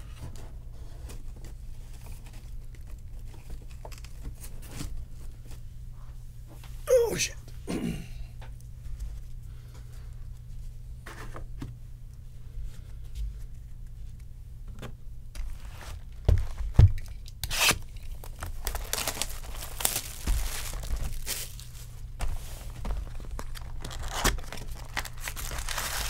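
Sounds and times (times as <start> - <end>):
cardboard ripping and crinkling: 17.4 - 22.0, 22.6 - 26.0.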